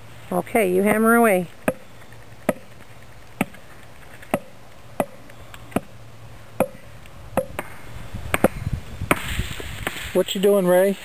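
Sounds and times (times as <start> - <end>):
wooden mallet knocking stake: 1.6 - 1.8, 4.3 - 5.9, 6.6 - 6.8.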